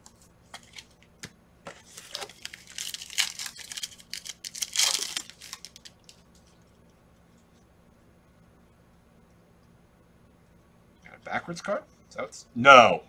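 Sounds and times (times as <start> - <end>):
foil wrapper crinkling and tearing: 1.8 - 6.2.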